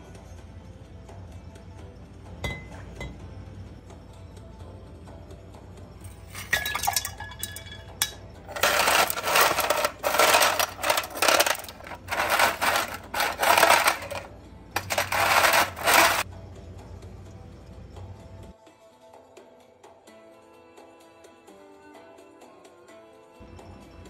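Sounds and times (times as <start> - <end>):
ice cubes clinking into glass: 6.1 - 16.2
metal scoop clattering through ice: 6.1 - 16.2.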